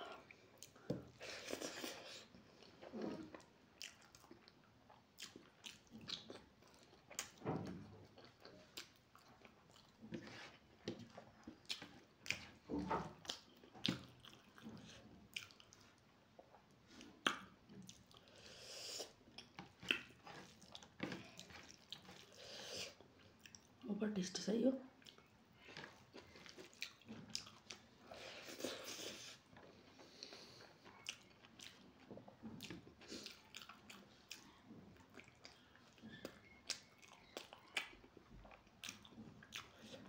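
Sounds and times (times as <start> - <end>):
person chewing: 0.0 - 23.8, 25.0 - 40.0
wet smacks and mouth clicks: 17.2 - 18.1.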